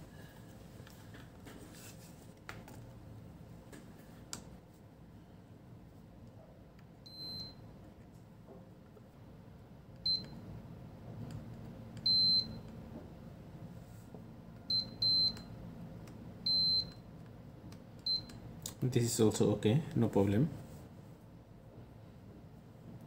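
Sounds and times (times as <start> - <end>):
multimeter beeping: 12.0 - 12.7, 14.7 - 15.5, 16.5 - 17.0.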